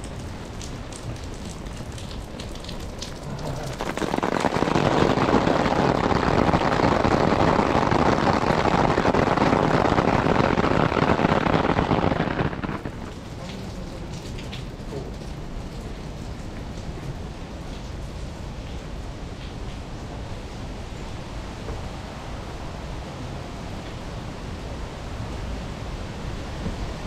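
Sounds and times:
water dripping onto umbrella: 0.0 - 19.9
rain pattering on plastic umbrella: 0.0 - 22.2.

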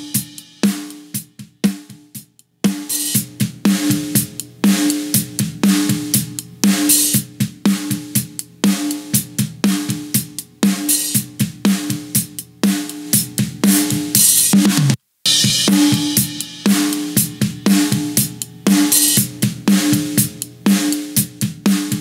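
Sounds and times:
hi-hat: 0.0 - 14.5
kick drum: 1.2 - 2.4, 5.2 - 10.6, 11.2 - 12.4.

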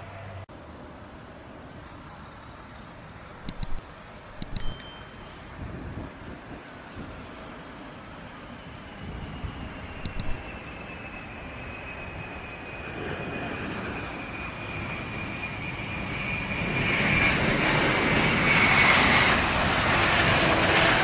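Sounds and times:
quick clicks: 3.4 - 5.5, 10.0 - 10.4
bright bell chime: 3.5 - 5.5
jet engines roaring: 6.8 - 21.0.

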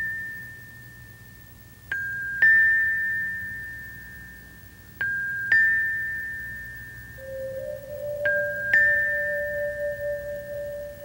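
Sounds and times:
faint low hum: 0.0 - 11.0
two-note metallic chime: 0.0 - 11.0.

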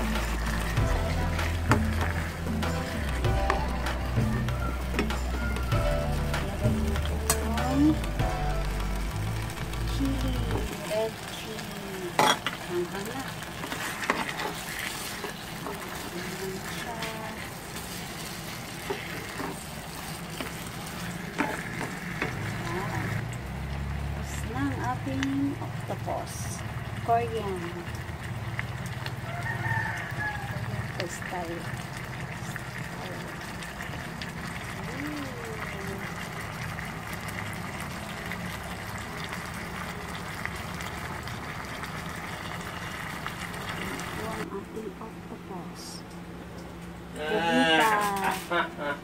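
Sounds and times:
low hum: 0.0 - 12.1
food sizzling in a pan: 0.0 - 44.5.

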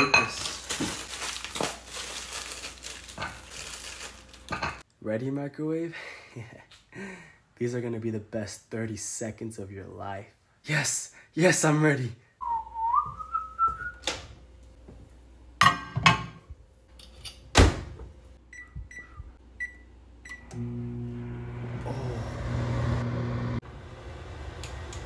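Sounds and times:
rising whistle: 12.4 - 14.0
microwave humming: 17.5 - 25.0.

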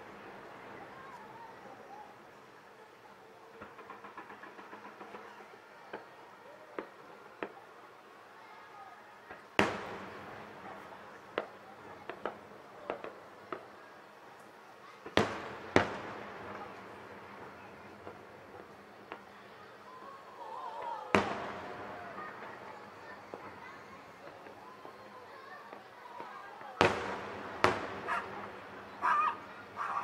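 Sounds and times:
firework shells bursting: 3.6 - 5.5, 21.1 - 25.0, 26.8 - 29.8.

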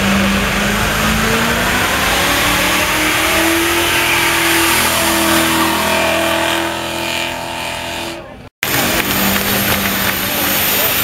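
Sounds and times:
car engine revving high: 0.0 - 11.0
spinning tyres hissing: 0.0 - 11.0.

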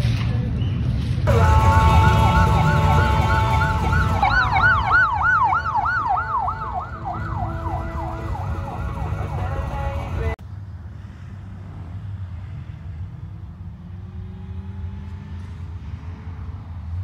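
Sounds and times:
low engine rumble: 0.0 - 13.9
electronic siren: 1.3 - 10.4.

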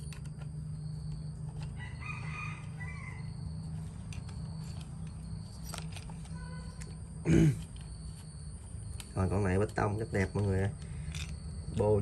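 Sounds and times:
rooster crowing: 1.6 - 3.8.

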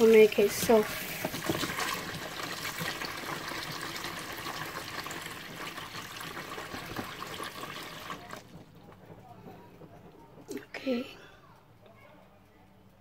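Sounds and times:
tap running into water: 0.0 - 8.6.

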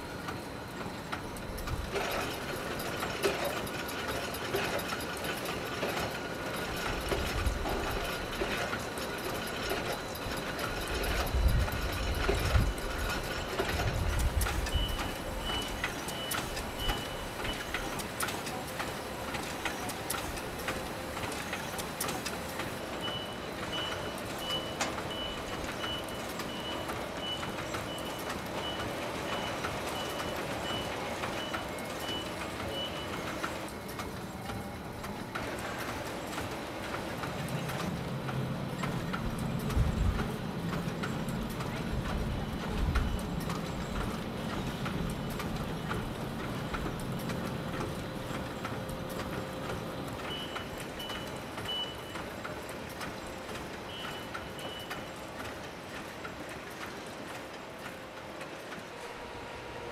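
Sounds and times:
low steady machine hum: 0.0 - 59.9
machinery clattering: 0.0 - 59.9.

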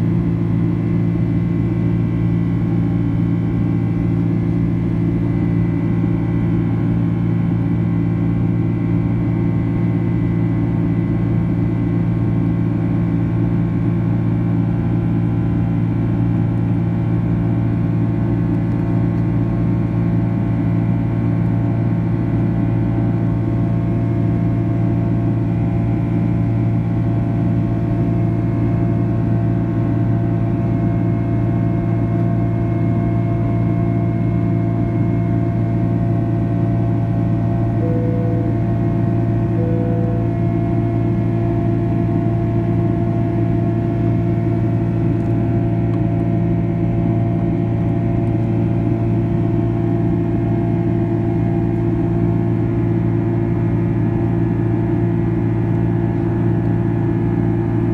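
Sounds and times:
airplane cabin engine drone: 0.0 - 57.9
faint steady whine tones: 37.6 - 42.3.

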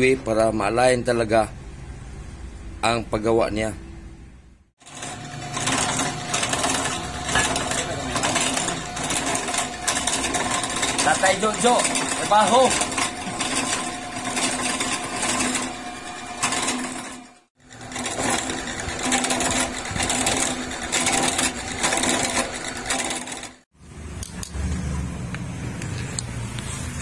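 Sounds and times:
drill press motor hum: 4.8 - 23.6
cutter scraping metal: 4.8 - 23.7.

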